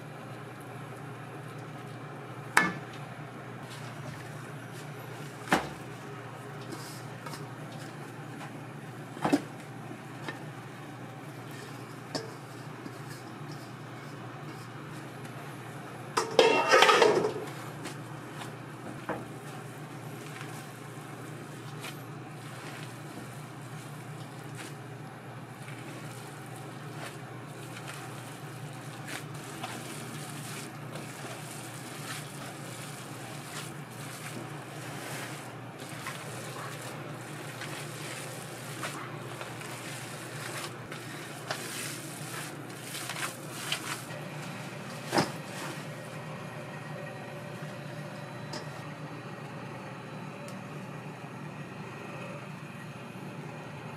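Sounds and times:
steady low hum: 0:00.0 - 0:53.9
cookware knocking and clinking: 0:16.2 - 0:17.4.

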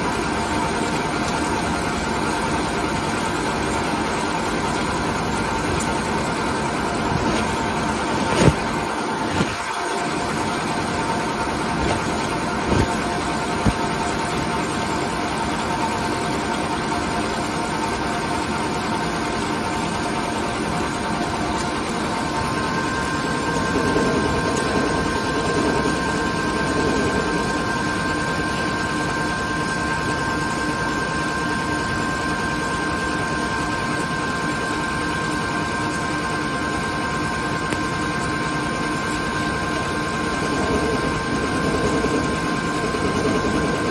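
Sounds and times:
lathe running: 0:00.0 - 0:16.5, 0:20.9 - 0:31.0, 0:38.2 - 0:43.9
high whine: 0:04.7 - 0:15.3, 0:22.0 - 0:32.4, 0:38.3 - 0:43.9.

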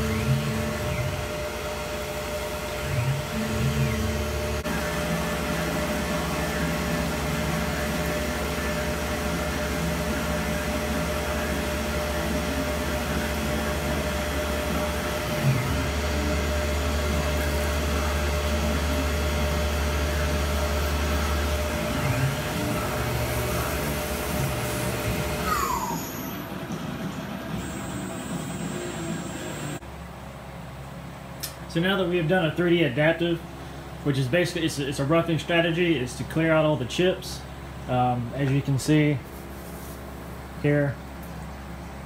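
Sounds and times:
milling machine whir: 0:00.0 - 0:29.8.

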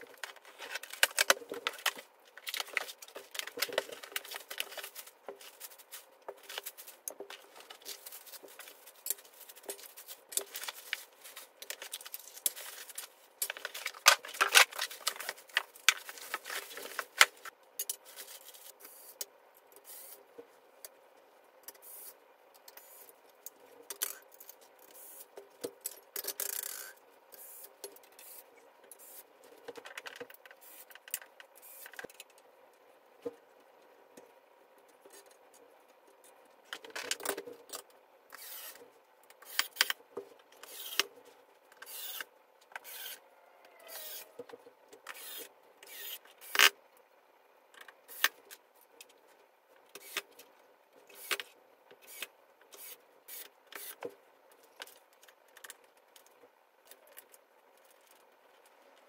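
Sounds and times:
cardboard and foam rustling: 0:00.0 - 0:18.8.

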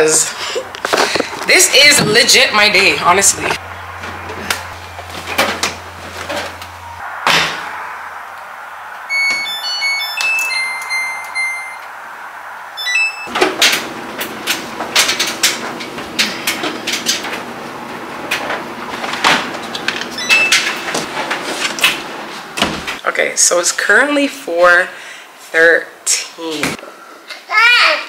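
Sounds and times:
steady hum: 0:01.1 - 0:23.0
short electronic beeps: 0:09.1 - 0:11.8, 0:12.8 - 0:13.3.

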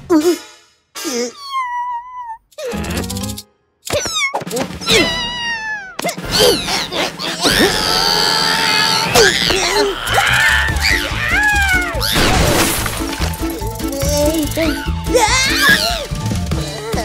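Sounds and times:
cartoon cat yowling and screeching: 0:01.3 - 0:02.4, 0:04.0 - 0:12.3
background music: 0:02.6 - 0:17.0.

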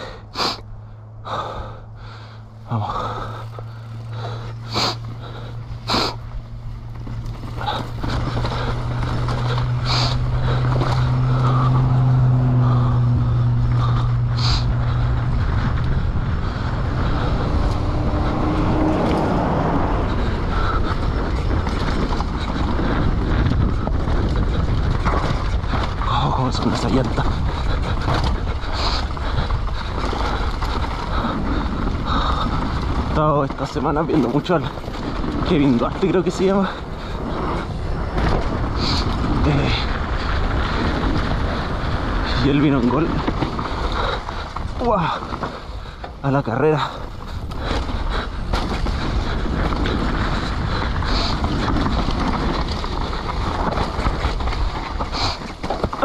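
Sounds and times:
bike rumbling and rattling: 0:00.0 - 0:56.0
tyres on dirt and rocks: 0:00.0 - 0:56.0
wind rushing over microphone: 0:02.4 - 0:56.0
wind on microphone: 0:07.6 - 0:33.2.

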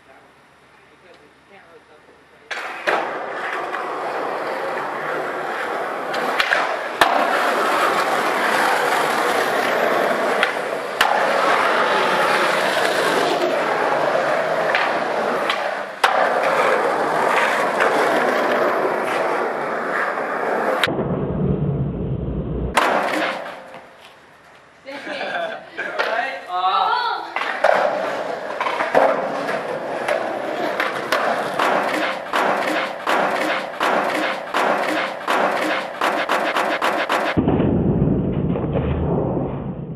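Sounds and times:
skateboard clacks: 0:02.5 - 0:20.9, 0:22.8 - 0:23.9, 0:27.3 - 0:37.4
skateboard wheels rolling on concrete: 0:02.5 - 0:20.9, 0:22.7 - 0:39.9
heavy low rumble: 0:20.8 - 0:22.8, 0:37.4 - 0:39.9.

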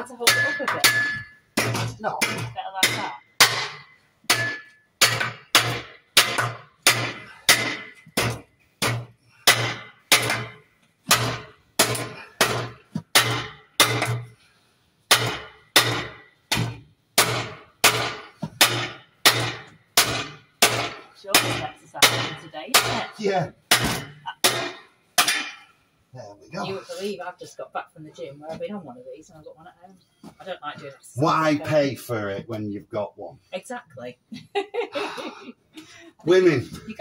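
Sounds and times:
hammer clanging on metal frame: 0:00.2 - 0:14.4, 0:15.1 - 0:25.8.

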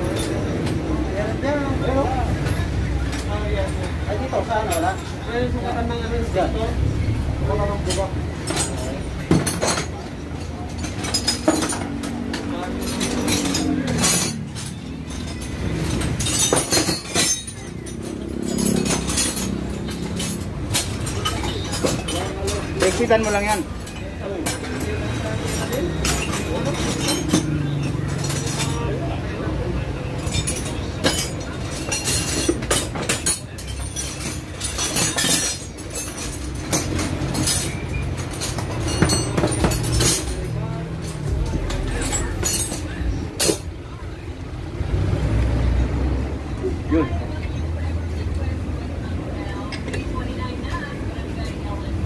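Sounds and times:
small metal clinks: 0:07.6 - 0:29.2, 0:30.0 - 0:44.0.

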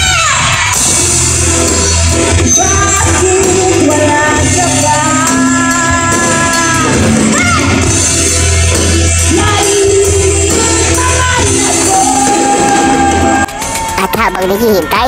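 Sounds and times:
bass line: 0:00.0 - 0:15.0
live rock band playing: 0:00.0 - 0:15.0
person singing long notes: 0:02.6 - 0:08.0.

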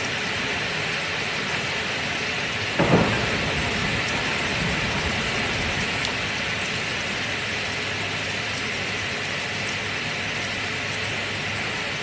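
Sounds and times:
heavy rain: 0:00.0 - 0:12.0
thunder crack and rumbling: 0:02.8 - 0:07.4.

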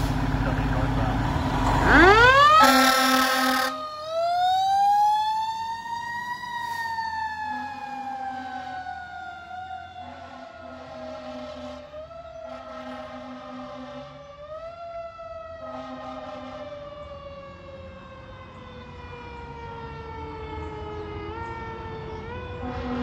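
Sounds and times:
fire engine siren wailing: 0:00.0 - 0:23.0
air horn blasts: 0:01.8 - 0:03.8, 0:10.0 - 0:11.9, 0:12.5 - 0:14.2, 0:15.6 - 0:16.8, 0:22.6 - 0:23.0.

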